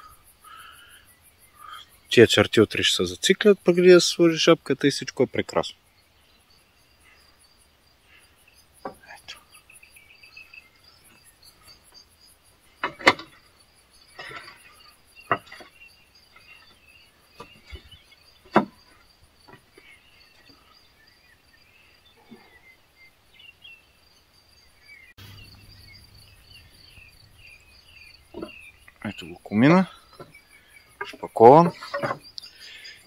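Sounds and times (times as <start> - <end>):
crickets chirping: 0.0 - 33.0
sharp knocks: 18.5 - 18.9.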